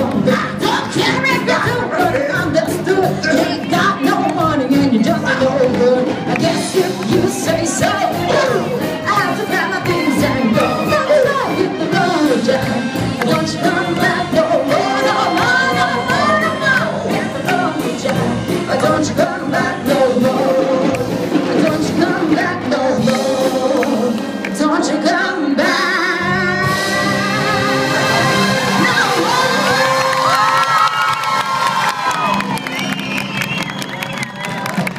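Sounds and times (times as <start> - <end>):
woman singing through a pa: 0.0 - 20.9
brass military band: 0.0 - 25.0, 25.6 - 34.9.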